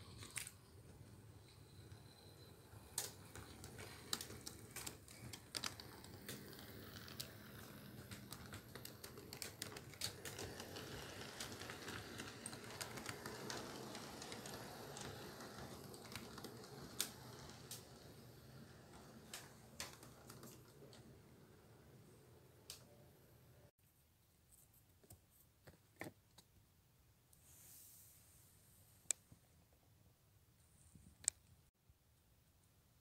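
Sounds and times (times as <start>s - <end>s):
model train wheels clicking: 0.0s - 21.5s
model train rumble: 5.4s - 19.5s.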